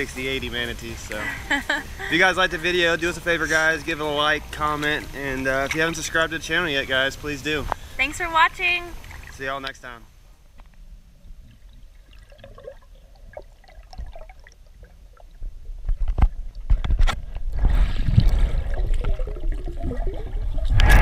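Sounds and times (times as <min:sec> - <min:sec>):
rushing water and air bubbles: 0:08.9 - 0:09.6, 0:10.8 - 0:21.0
underwater clicks and crackles: 0:10.5 - 0:21.0.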